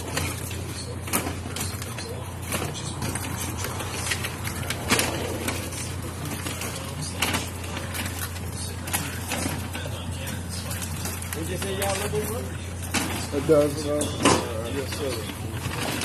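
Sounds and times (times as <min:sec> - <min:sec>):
crabs rustling in paper bag: 0:00.0 - 0:16.0.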